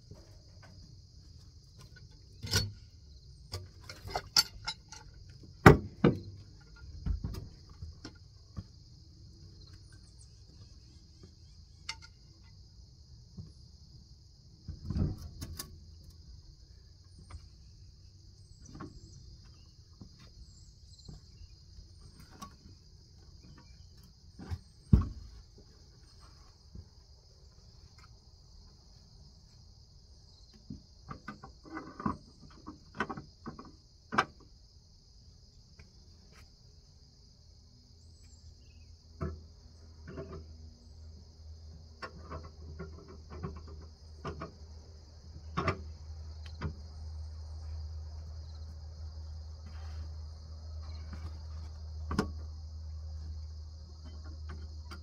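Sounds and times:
crickets trilling: 0.0s - 55.0s
log thumping on steel bed: 3.5s - 8.7s, 24.4s - 25.7s.

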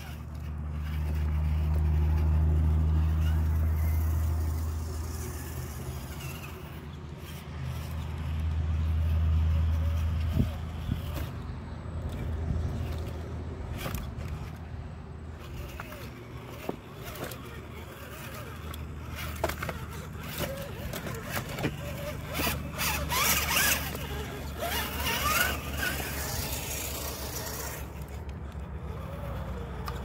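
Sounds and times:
tires knocking on wood: 15.5s - 28.1s.

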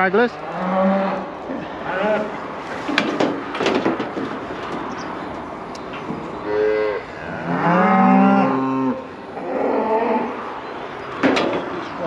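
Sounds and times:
cattle bawling: 0.3s - 3.3s, 6.1s - 10.7s.

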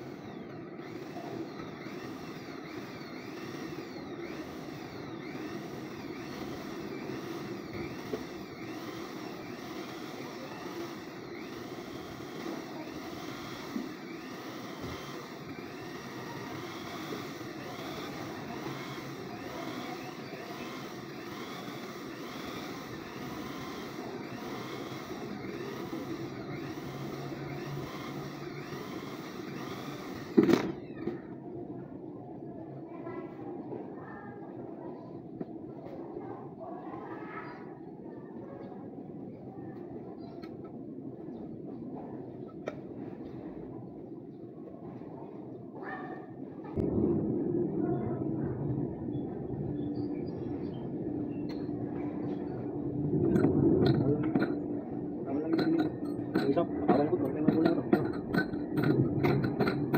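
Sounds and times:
electric drill whirring: 0.0s - 31.2s.

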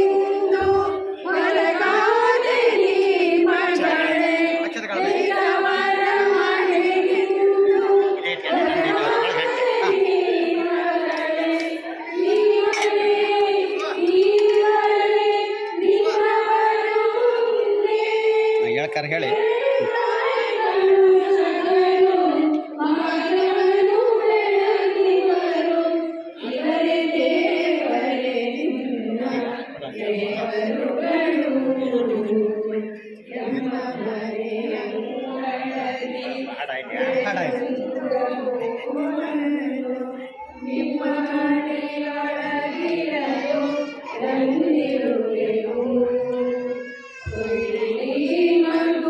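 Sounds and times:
voices chanting mantras: 0.0s - 49.0s
person chanting: 3.7s - 14.7s, 15.8s - 17.3s.

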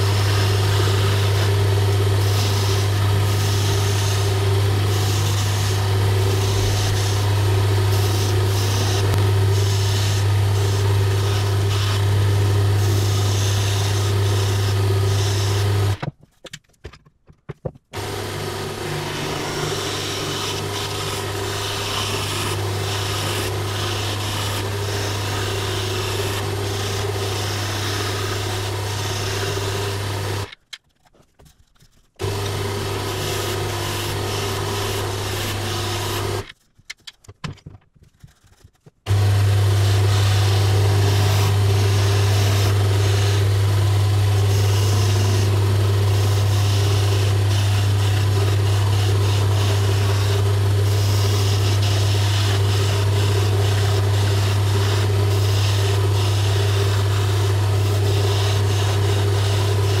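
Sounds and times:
chisel shavings hissing off wood: 0.0s - 16.0s, 18.0s - 30.5s, 32.2s - 36.4s, 39.1s - 60.0s
wood lathe motor hum: 0.0s - 16.0s, 18.0s - 30.6s, 32.2s - 36.5s, 39.1s - 60.0s.

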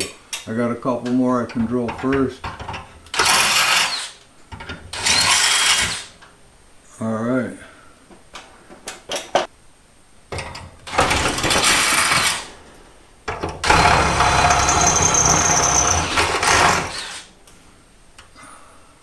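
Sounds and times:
cordless drill boring metal: 3.1s - 4.2s, 4.9s - 6.1s, 10.9s - 12.5s, 13.6s - 17.3s.

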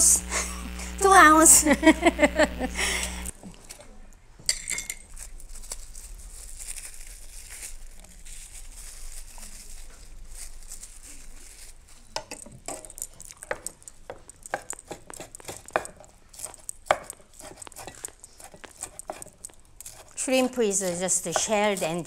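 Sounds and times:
knife chopping on wooden board: 14.5s - 20.1s.

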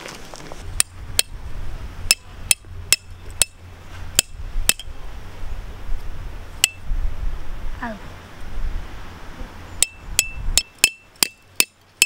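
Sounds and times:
hammer striking metal tent peg: 2.1s - 3.6s, 4.2s - 4.9s, 6.6s - 6.8s, 9.8s - 12.0s.

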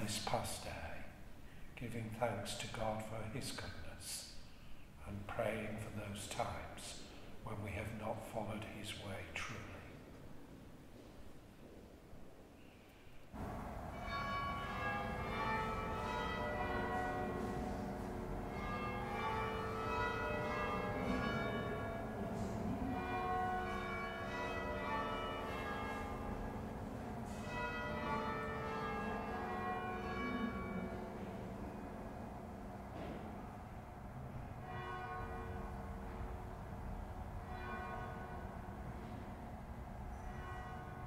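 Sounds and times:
church bells ringing: 13.4s - 41.0s.

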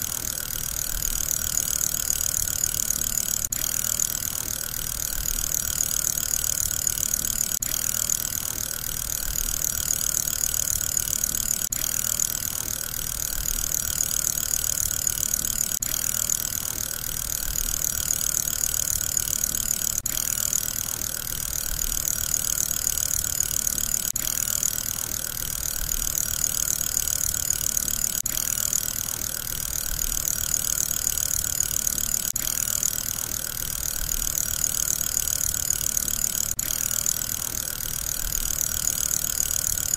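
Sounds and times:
fidget spinner whirring: 0.0s - 39.9s.

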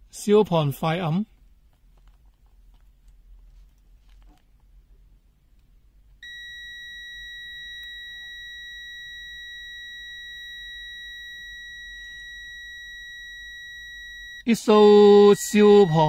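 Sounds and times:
multimeter continuity beep: 6.2s - 16.0s.

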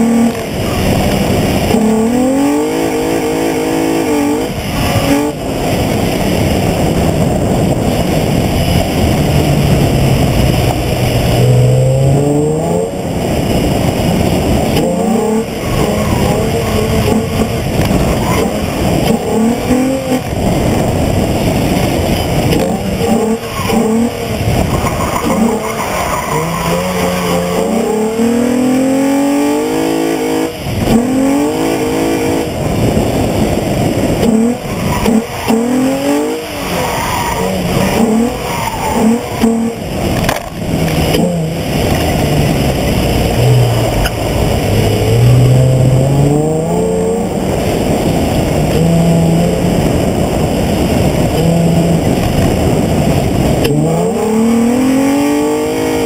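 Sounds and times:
car engine revving: 0.0s - 56.0s
tyres skidding and squealing: 7.9s - 32.3s, 33.5s - 49.5s.

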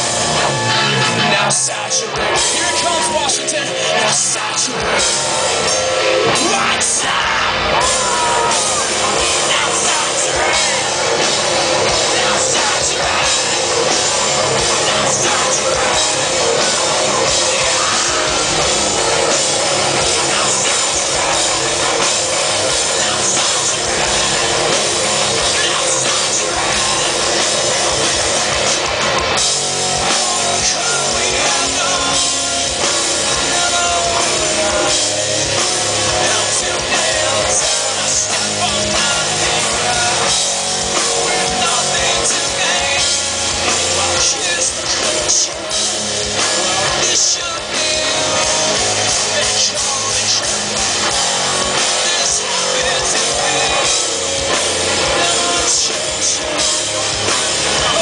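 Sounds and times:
distorted electric guitar: 0.0s - 58.0s
drum kit: 0.0s - 58.0s
person singing: 0.0s - 58.0s.

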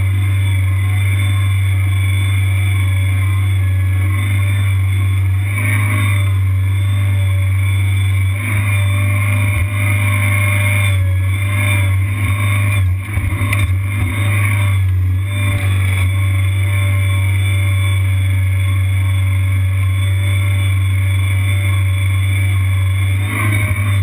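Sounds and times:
skid steer engine running: 0.0s - 24.0s.

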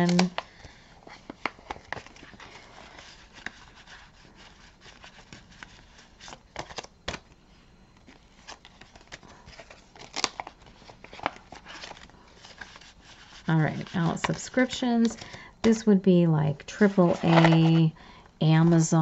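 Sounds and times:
paper rustling: 0.0s - 7.3s, 8.0s - 14.4s, 17.0s - 17.9s.

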